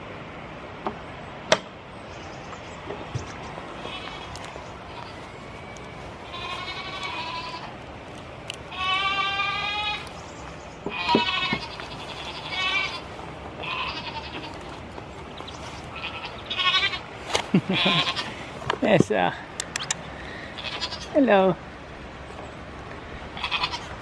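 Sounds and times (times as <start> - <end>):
goats bleating: 3.8 - 7.8, 8.7 - 10.2, 10.9 - 18.5, 20.3 - 21.2, 23.3 - 24.0.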